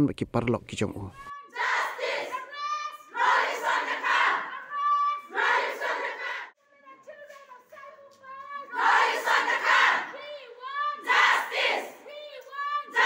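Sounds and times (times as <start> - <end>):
crowd shouting in unison: 1.3 - 6.6, 8.5 - 13.0.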